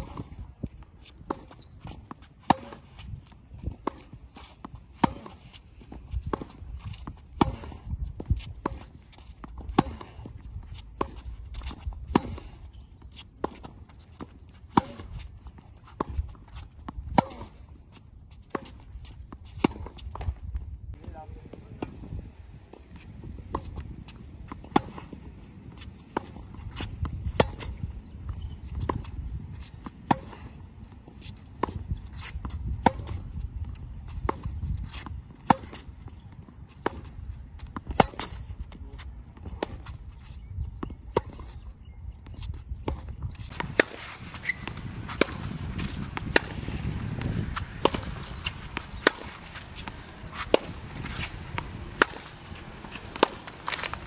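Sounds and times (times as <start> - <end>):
wind rumbling on microphone: 0.0 - 2.0, 2.8 - 4.9, 5.9 - 9.0, 18.2 - 54.0
tennis balls struck with rackets: 0.0 - 3.0, 3.7 - 5.5, 6.3 - 10.3, 13.4 - 15.2, 16.0 - 17.7, 29.8 - 30.5, 31.5 - 33.2, 34.2 - 36.2, 36.8 - 38.5, 42.8 - 54.0
ball bounces: 43.5 - 54.0
footsteps on hard court: 43.5 - 54.0.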